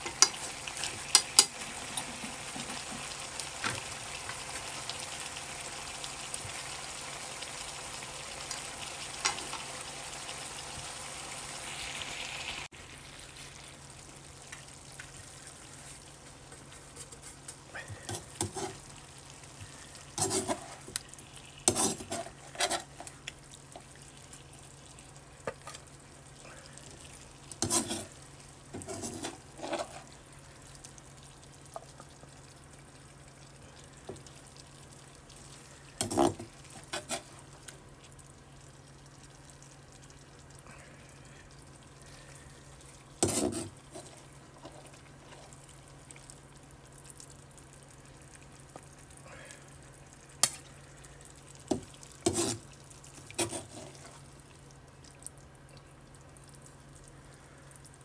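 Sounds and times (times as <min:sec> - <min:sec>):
low steady hum: 0:12.4 - 0:58.0
spatula scraping frying pan: 0:16.7 - 0:18.8, 0:20.1 - 0:23.1, 0:27.6 - 0:30.1, 0:36.0 - 0:37.4, 0:43.2 - 0:45.6, 0:51.7 - 0:54.2.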